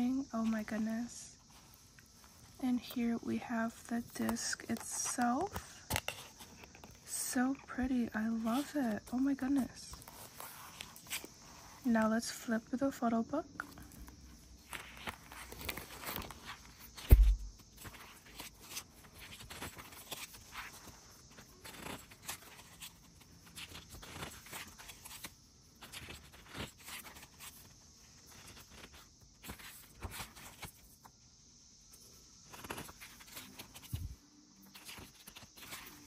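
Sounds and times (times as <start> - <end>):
paper rustling: 13.7 - 31.1, 32.5 - 36.0.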